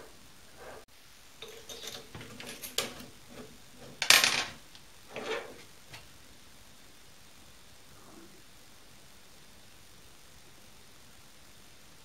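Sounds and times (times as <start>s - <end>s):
metal clinks and clanks: 1.4s - 5.4s.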